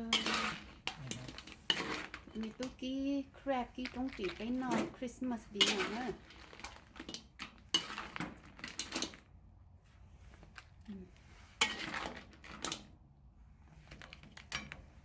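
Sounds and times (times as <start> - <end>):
utensils clattering on dishes: 0.0 - 2.8.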